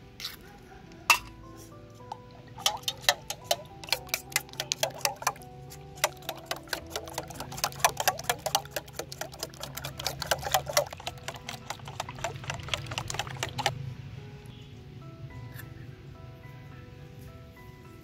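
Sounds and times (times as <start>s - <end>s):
spoon beating eggs in metal bowl: 1.1s - 13.7s.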